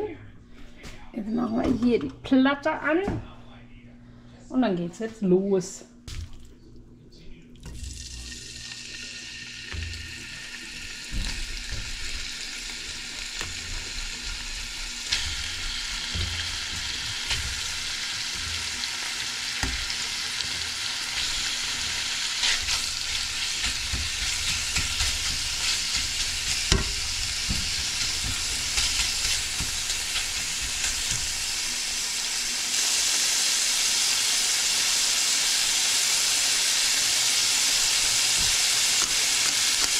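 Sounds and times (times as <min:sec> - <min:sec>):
chicken sizzling in a pan: 0:08.0 - 0:39.9
meat knocking in pan: 0:09.7 - 0:32.1.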